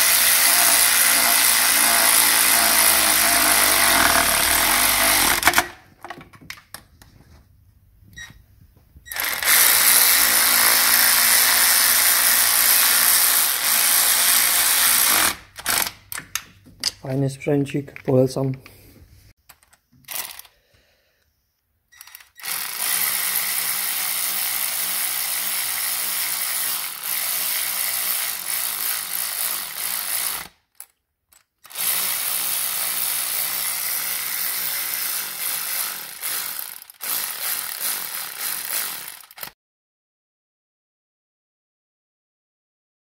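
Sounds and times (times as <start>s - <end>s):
electric ratchet whirring: 0.0s - 5.7s, 9.1s - 16.0s, 22.0s - 30.5s, 31.6s - 39.5s.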